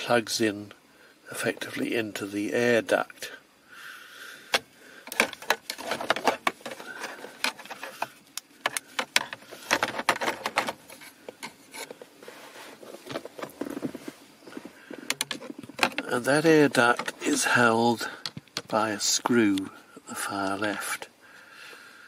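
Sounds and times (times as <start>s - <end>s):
plastic air vent clicking and scraping: 4.5s - 12.2s, 14.8s - 17.4s.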